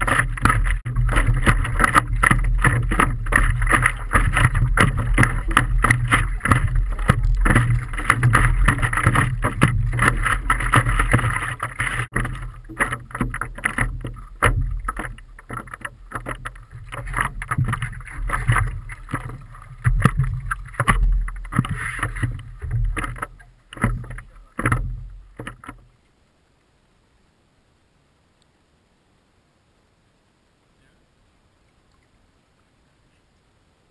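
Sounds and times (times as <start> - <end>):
wind rumbling on microphone: 0.0 - 26.0
water splashing against paddleboard: 0.0 - 26.1.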